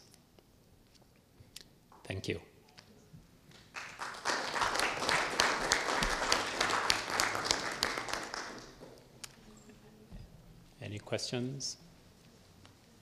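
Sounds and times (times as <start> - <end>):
audience applauding: 3.5 - 8.9.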